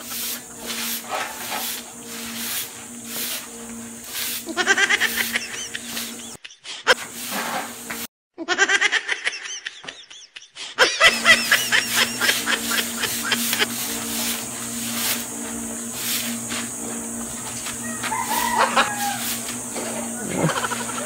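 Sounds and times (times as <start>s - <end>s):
steady low hum: 0.0s - 6.4s, 11.1s - 21.0s
rapid high-pitched laughter: 4.5s - 7.0s, 8.4s - 13.7s, 20.3s - 21.0s.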